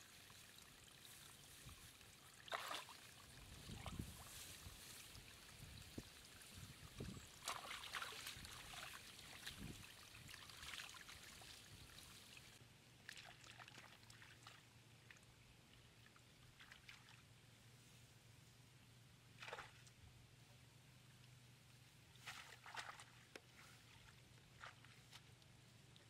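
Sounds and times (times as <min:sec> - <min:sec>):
water trickling: 0:00.0 - 0:12.6.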